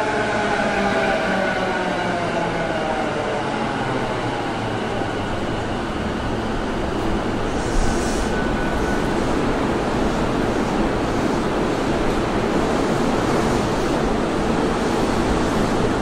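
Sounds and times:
train wheel and running noise: 0.0 - 16.0.

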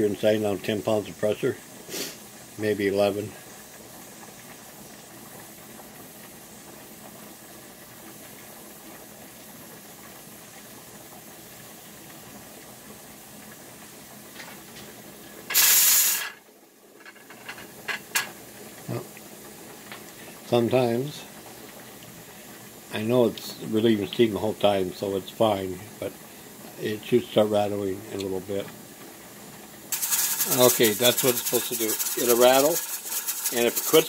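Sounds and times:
pressure canner hissing: 0.0 - 34.0
steam puff venting: 1.6 - 4.8, 15.2 - 16.4, 29.9 - 34.0.

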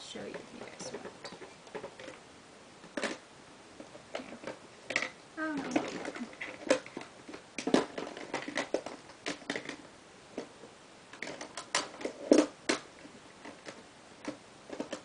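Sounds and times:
small items rummaged through: 4.1 - 9.8.

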